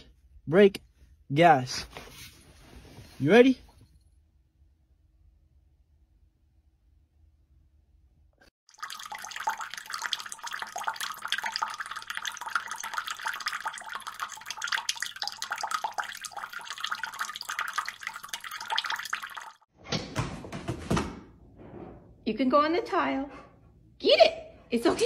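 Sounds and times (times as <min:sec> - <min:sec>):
water trickling: 0:08.7 - 0:19.7.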